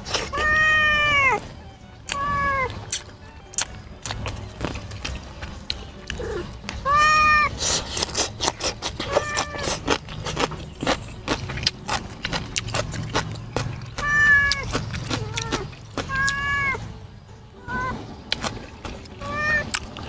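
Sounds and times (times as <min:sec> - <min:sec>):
cat meowing: 0:00.2 - 0:01.4, 0:02.0 - 0:03.4, 0:06.2 - 0:07.5, 0:09.1 - 0:09.7, 0:14.0 - 0:16.8, 0:17.6 - 0:18.0, 0:19.2 - 0:19.8
man chewing and lip-smacking: 0:02.0 - 0:06.8, 0:07.5 - 0:16.4, 0:18.3 - 0:20.0.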